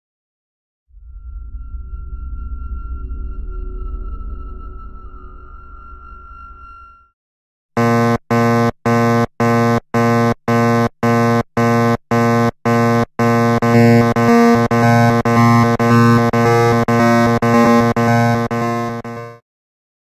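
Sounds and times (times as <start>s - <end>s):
pulsing electronic warning buzzer: 7.8s - 19.4s.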